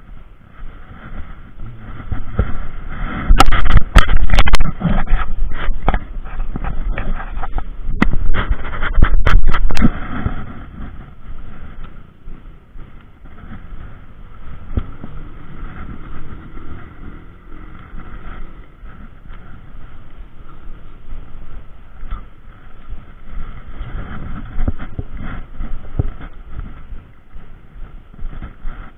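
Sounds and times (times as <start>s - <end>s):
steady rushing noise: 0.0s - 28.9s
wind rumbling on microphone: 0.0s - 28.9s.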